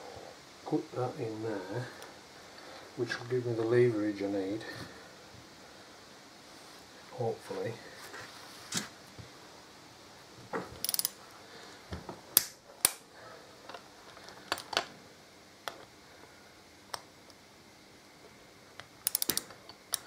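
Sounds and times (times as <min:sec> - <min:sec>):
ratchet clicks: 0:10.8 - 0:11.2, 0:19.0 - 0:20.0
sharp metal clicks: 0:10.8 - 0:11.2, 0:19.0 - 0:20.0.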